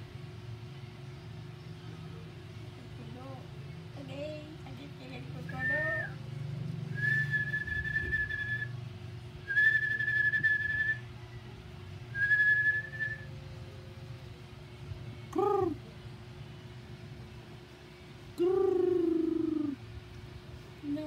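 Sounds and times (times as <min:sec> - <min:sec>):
person whistling long notes: 0:06.9 - 0:08.7, 0:09.5 - 0:11.0, 0:12.2 - 0:13.3
rising and falling whistle call: 0:06.9 - 0:08.8, 0:09.4 - 0:11.0, 0:12.1 - 0:13.3.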